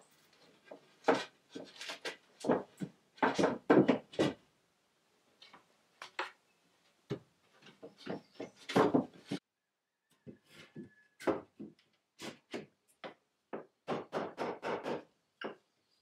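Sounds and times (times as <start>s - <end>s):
wooden board knocking against frame: 8.0s - 9.4s.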